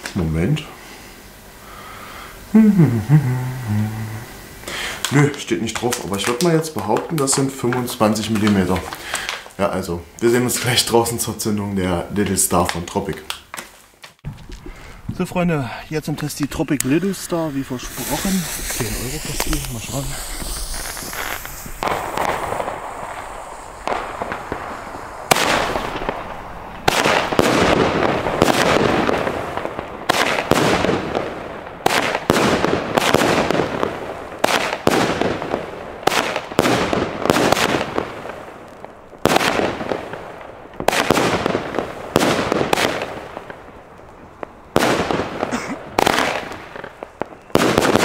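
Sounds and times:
fireworks launching and bursting: 0.0 - 48.0.

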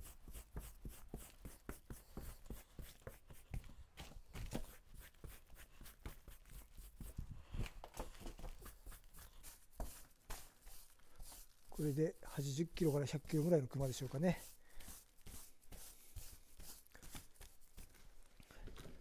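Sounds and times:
brush scratching over fur: 0.0 - 3.7, 4.6 - 7.2, 8.3 - 18.0.

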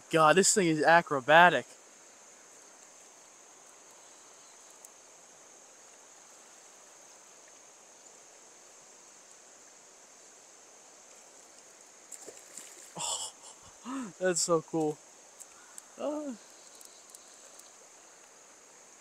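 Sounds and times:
high-pitched insect drone: 12.2 - 18.8.

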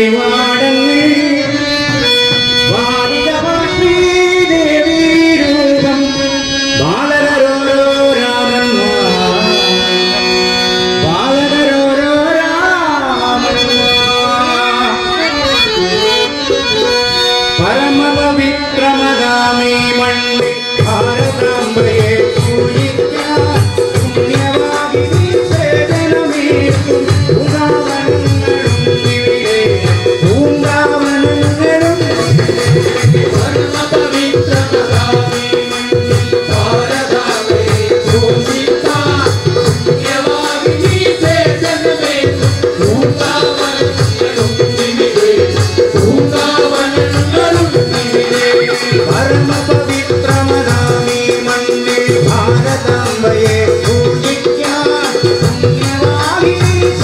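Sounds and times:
harmonium: 0.0 - 57.0
reedy melody: 0.0 - 57.0
hand drum: 15.6 - 57.0.

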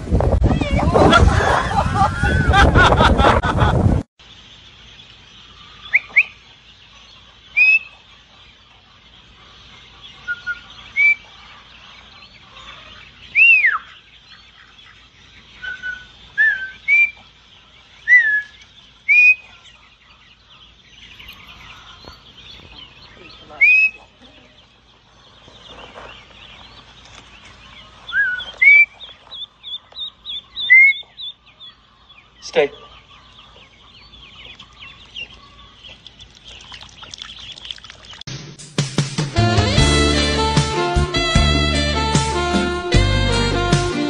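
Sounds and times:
ducklings peeping: 4.2 - 38.2.

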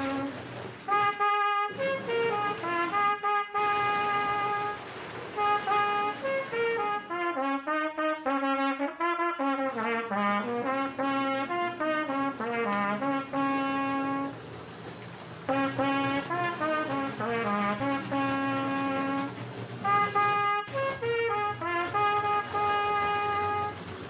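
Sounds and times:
trumpet playing a tune: 0.0 - 14.4, 15.5 - 24.0.

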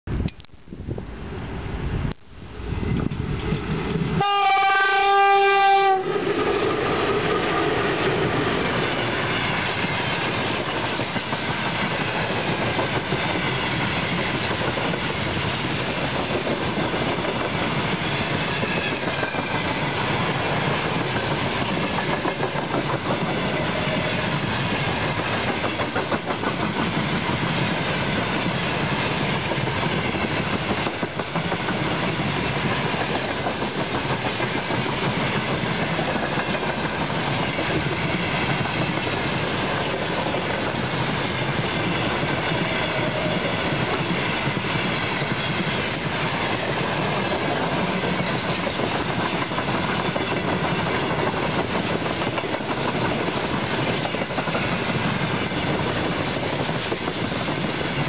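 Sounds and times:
train wheels on rails: 1.3 - 58.0
locomotive air horn blast: 4.2 - 6.1.

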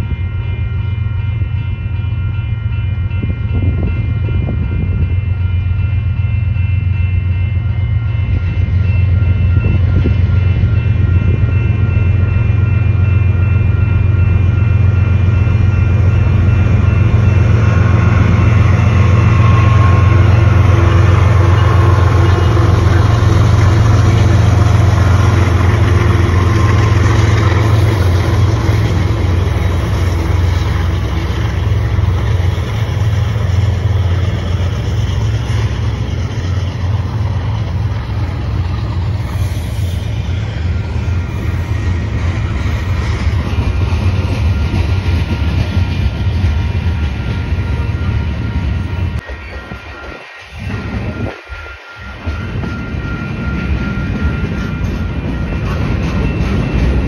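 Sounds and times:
diesel locomotive engine drone: 0.0 - 57.0
freight cars rolling on rails: 6.5 - 57.0.

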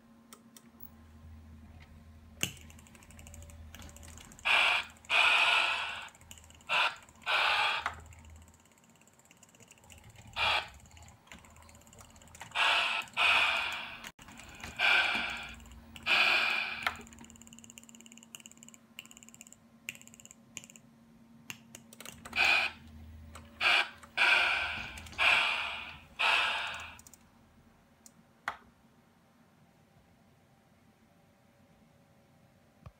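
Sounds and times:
model steam locomotive hissing bursts: 4.5 - 6.1, 6.7 - 7.8, 12.5 - 14.1, 14.7 - 17.0, 23.6 - 27.0.

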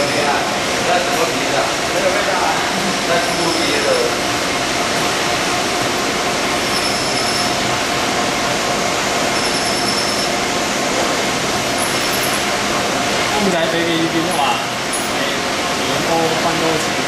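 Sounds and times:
coolant spray and milling noise: 0.0 - 17.0
faint held tone: 9.3 - 10.3.

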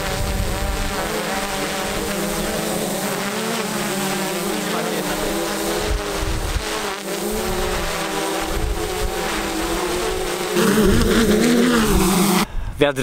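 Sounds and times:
wind rumble on microphone: 0.0 - 1.1, 5.8 - 6.7, 7.4 - 9.8
drone propellers buzzing: 0.0 - 12.5.

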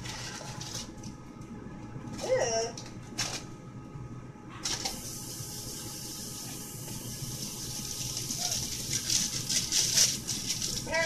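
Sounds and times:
water running from a tap: 4.7 - 11.0.

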